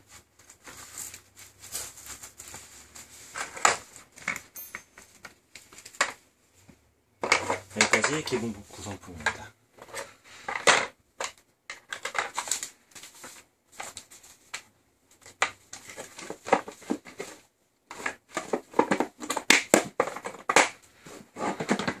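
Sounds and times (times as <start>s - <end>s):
plastic case clattering and clicking: 7.2s - 8.5s, 9.1s - 12.6s, 15.2s - 22.0s.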